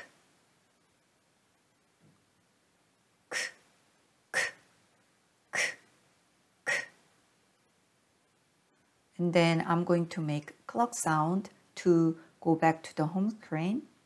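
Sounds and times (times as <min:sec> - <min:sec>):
mouth clicking k sounds: 0:03.3 - 0:03.7, 0:04.3 - 0:04.7, 0:05.5 - 0:05.9, 0:06.6 - 0:07.0.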